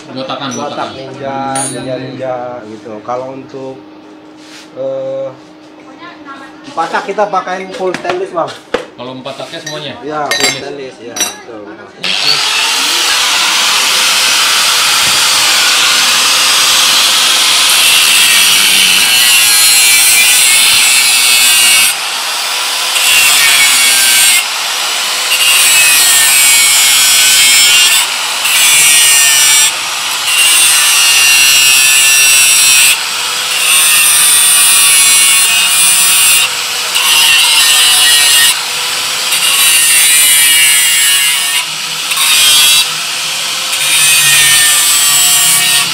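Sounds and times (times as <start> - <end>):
angle grinder cutting metal: 0.4 - 2.0, 12.0 - 45.9
grinder motor whine: 12.0 - 39.7, 40.3 - 45.9.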